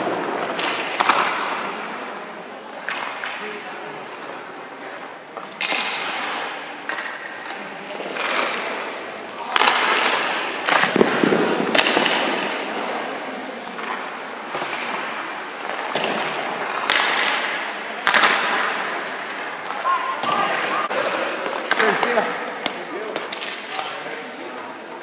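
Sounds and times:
puck and stick knocks: 0:00.0 - 0:01.7, 0:02.8 - 0:03.4, 0:05.4 - 0:08.9, 0:09.5 - 0:12.7, 0:13.8 - 0:20.7, 0:21.4 - 0:24.0
skate blades scraping ice: 0:00.1 - 0:02.0, 0:05.4 - 0:17.2.

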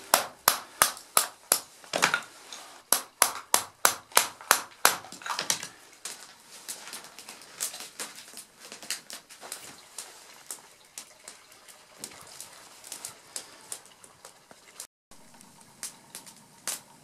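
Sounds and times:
baton knocking knife through wood: 0:02.9 - 0:05.6.

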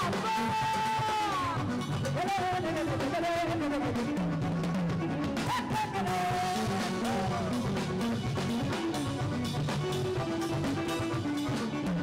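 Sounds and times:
band playing instrumental: 0:00.0 - 0:12.0.

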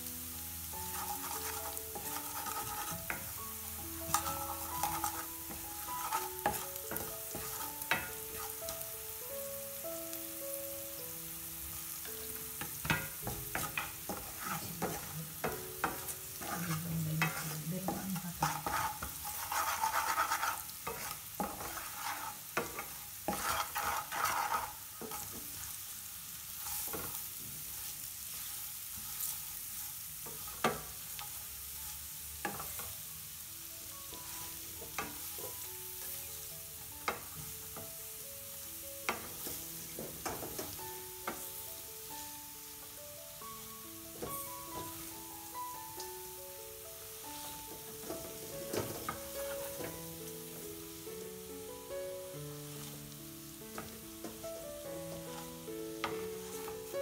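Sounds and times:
faint background music: 0:00.0 - 0:57.0
vegetables sizzling in oil: 0:00.0 - 0:57.0
spatula scraping frying pan: 0:00.8 - 0:08.6, 0:12.6 - 0:33.0, 0:47.1 - 0:50.0, 0:55.1 - 0:57.0.

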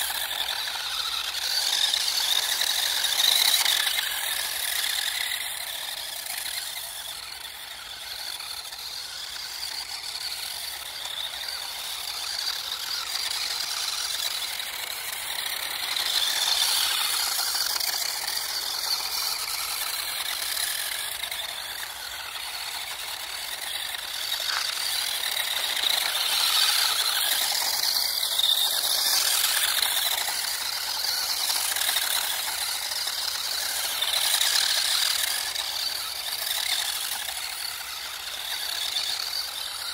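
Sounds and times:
rc car motor whirring: 0:00.0 - 0:39.9.

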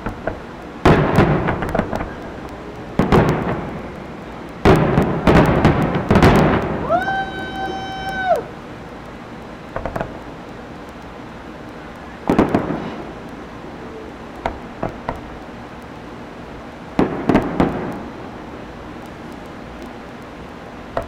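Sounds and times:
fireworks bursting: 0:00.0 - 0:21.0.

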